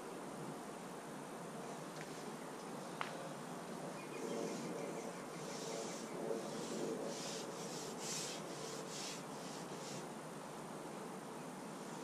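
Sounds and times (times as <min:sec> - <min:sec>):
faint steady background noise: 0:00.0 - 0:12.0
soft rubbing noises: 0:03.2 - 0:10.2.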